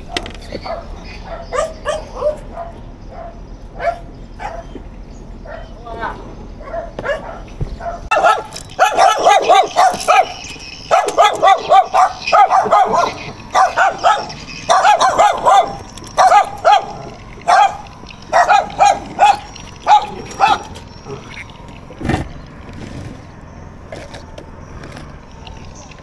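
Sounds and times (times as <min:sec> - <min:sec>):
dog barking: 0:00.6 - 0:04.8, 0:05.4 - 0:05.8, 0:06.6 - 0:20.7.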